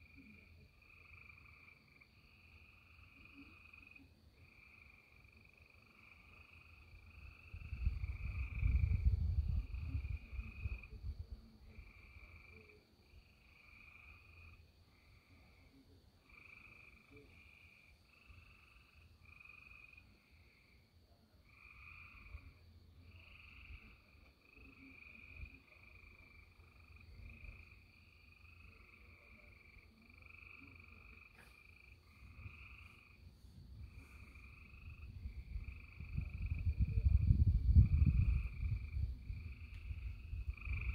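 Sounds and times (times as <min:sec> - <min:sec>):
low rumble: 0:33.6 - 0:40.9.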